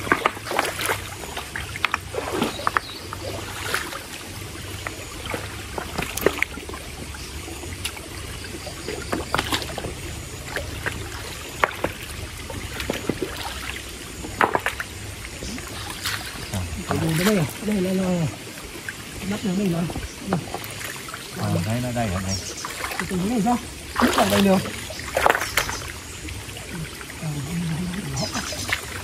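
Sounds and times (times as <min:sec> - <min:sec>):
stream water rushing: 0:00.0 - 0:29.0
water splashing: 0:00.0 - 0:29.0.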